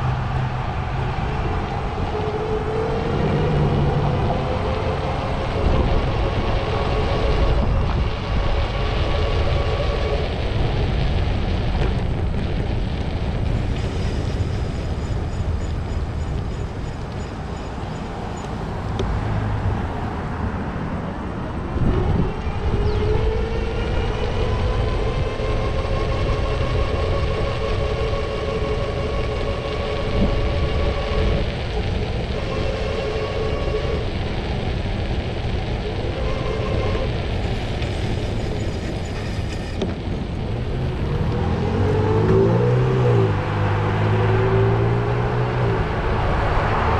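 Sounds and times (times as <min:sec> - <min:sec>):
passing vehicle whining hum: 0:00.0 - 0:46.9
street traffic rumble: 0:00.0 - 0:46.9.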